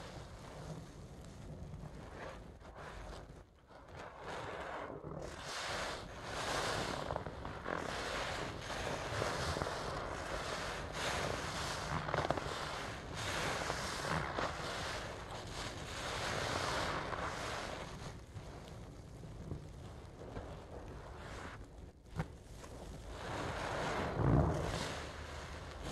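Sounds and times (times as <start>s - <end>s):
soapy sponge squishing: 4.0s - 25.9s.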